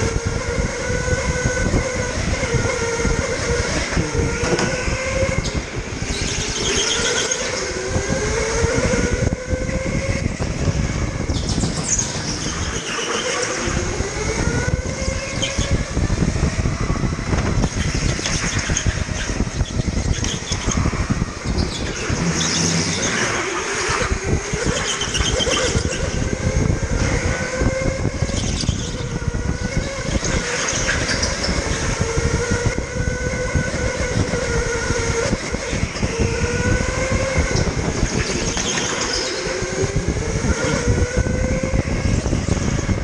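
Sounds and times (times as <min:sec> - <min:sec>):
kart rattling on track: 0:00.0 - 0:16.6, 0:17.2 - 0:43.0
electric motor whining: 0:00.0 - 0:43.0.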